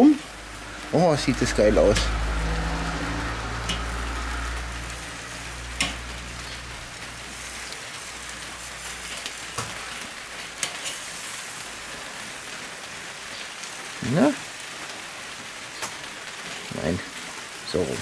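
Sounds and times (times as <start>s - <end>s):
meat sizzling over charcoal: 0.0s - 18.0s
low hum: 0.2s - 7.8s
tongs clicking on grill grate: 5.8s - 6.0s.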